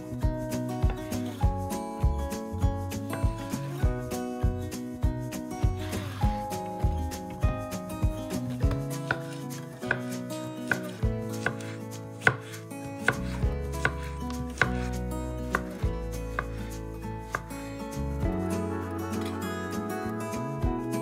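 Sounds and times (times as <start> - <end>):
soft background music: 0.0 - 21.0
knife knocking on cutting board: 12.3 - 12.5.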